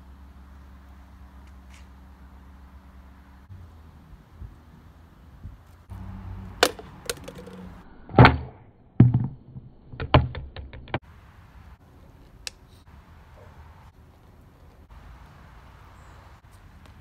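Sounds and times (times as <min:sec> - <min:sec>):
plastic bottle bouncing on pavement: 0:06.6 - 0:07.8, 0:09.0 - 0:09.4, 0:10.0 - 0:11.0.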